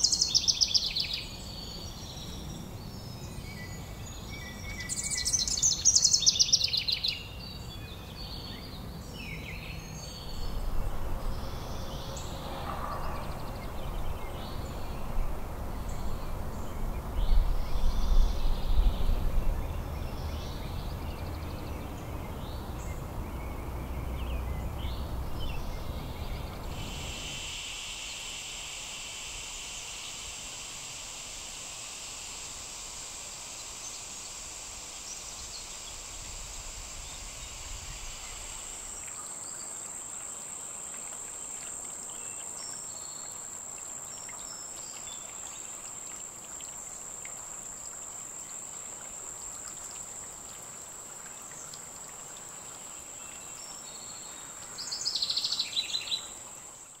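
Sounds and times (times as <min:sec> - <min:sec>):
lower insect trill: 0:00.0 - 0:02.0, 0:24.9 - 0:57.0
high-pitched insect chorus: 0:09.6 - 0:22.9, 0:24.9 - 0:57.0.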